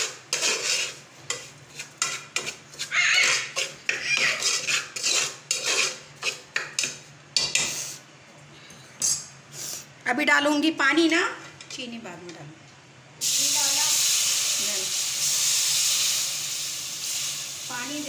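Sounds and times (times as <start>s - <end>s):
spoon scraping a metal pot: 0.0s - 8.0s.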